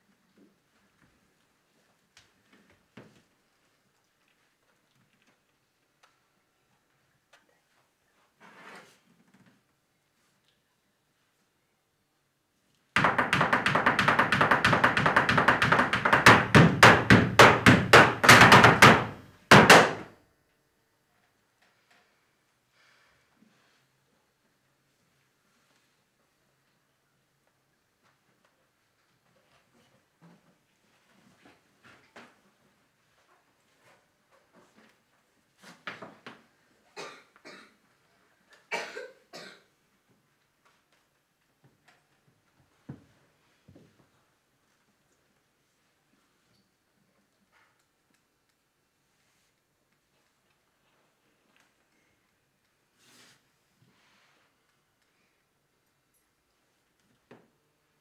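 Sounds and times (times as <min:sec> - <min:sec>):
heeled shoes stamping on stage: 0:13.0 - 0:20.0
woman coughing hoarsely: 0:37.0 - 0:37.8, 0:38.7 - 0:39.7.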